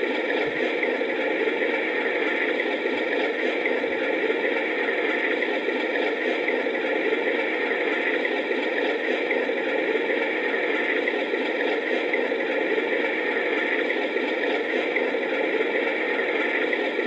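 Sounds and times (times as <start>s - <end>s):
diesel engine drone from small speaker: 0.0s - 17.0s.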